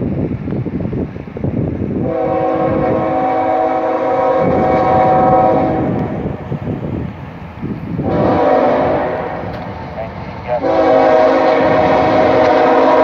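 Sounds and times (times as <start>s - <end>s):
train rumble: 0.0s - 13.0s
locomotive air horn chord: 2.0s - 6.2s, 8.0s - 9.5s, 10.5s - 13.0s.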